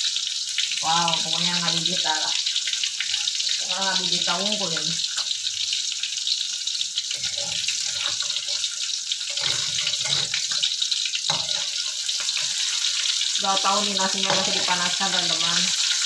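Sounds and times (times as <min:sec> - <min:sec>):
fish sizzling in hot oil: 0:00.0 - 0:16.0
metal spatula scraping a pan: 0:03.0 - 0:03.6, 0:07.0 - 0:16.0.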